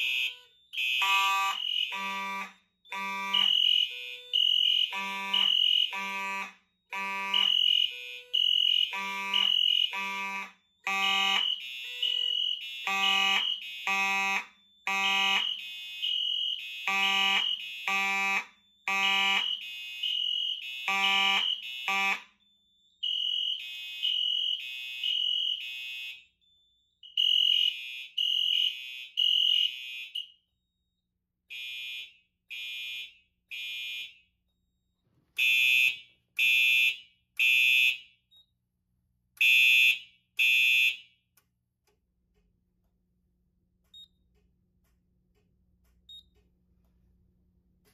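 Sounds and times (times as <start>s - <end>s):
low buzzy alarm horn: 0.0s - 22.4s, 35.4s - 38.0s
fire alarm horns beeping: 0.0s - 30.9s, 31.5s - 34.7s, 35.3s - 38.5s, 39.3s - 41.4s.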